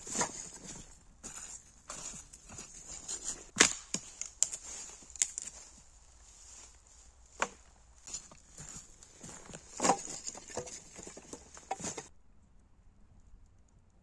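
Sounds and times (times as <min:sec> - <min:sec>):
firewood cracks and knocks: 0:03.5 - 0:05.7, 0:09.4 - 0:12.1.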